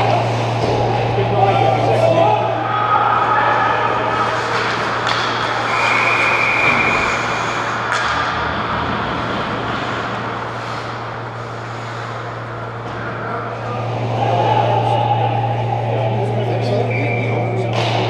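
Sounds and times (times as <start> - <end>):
low hum: 0.0 - 18.0
rushing arena noise: 0.0 - 18.0
high whistle-like tone: 5.7 - 7.3.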